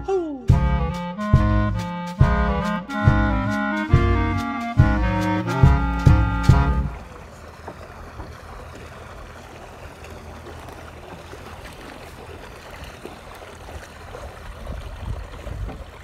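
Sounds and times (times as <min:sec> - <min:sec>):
small waves lapping: 0:04.5 - 0:16.0
wind rumble on microphone: 0:14.4 - 0:16.0.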